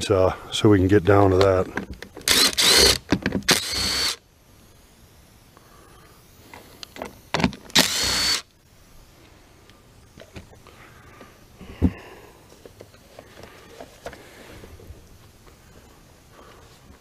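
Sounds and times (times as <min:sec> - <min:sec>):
cordless drill motor whining: 0:01.8 - 0:04.2, 0:07.7 - 0:08.5
drill bit clicking on screw: 0:02.2 - 0:04.2, 0:07.7 - 0:08.4.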